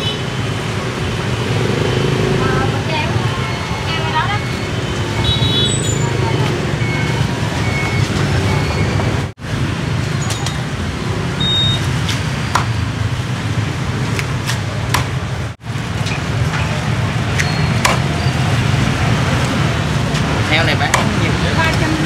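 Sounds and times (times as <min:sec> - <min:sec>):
street traffic hum: 0:00.0 - 0:22.0
cleaver chopping on wooden block: 0:17.8 - 0:18.1.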